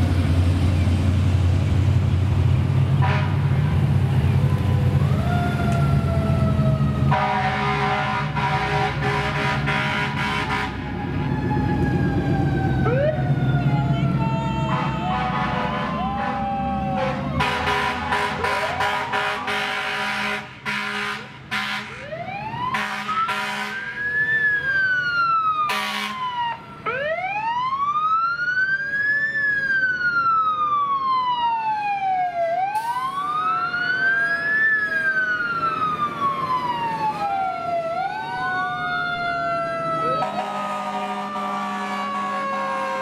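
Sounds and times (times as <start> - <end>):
emergency sirens wailing: 0.0 - 43.0
horns blaring: 3.0 - 3.8, 7.0 - 10.9, 13.6 - 24.0, 25.6 - 26.3, 40.0 - 43.0.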